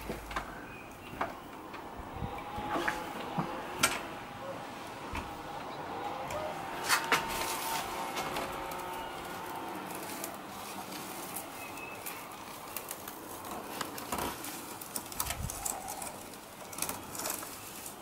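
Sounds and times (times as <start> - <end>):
wreath rustling and clicking: 6.3 - 18.0.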